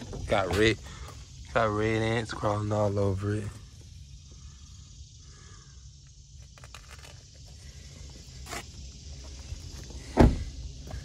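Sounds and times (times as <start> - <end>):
car door shutting: 10.0 - 10.6.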